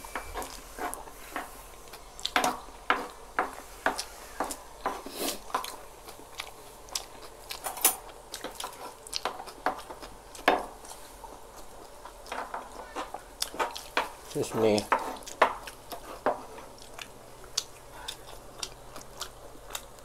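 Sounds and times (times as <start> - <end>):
chewing and mouth smacks: 1.8 - 2.6, 5.3 - 20.0.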